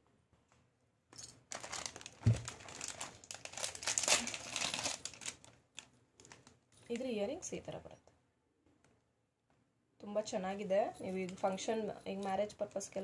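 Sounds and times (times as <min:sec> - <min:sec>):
plastic packet crinkling: 0:01.5 - 0:07.1.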